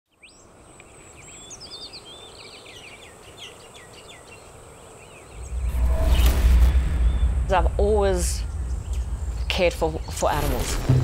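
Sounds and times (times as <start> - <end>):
birds chirping: 0.1 - 10.7
deep low rumble: 5.4 - 11.0.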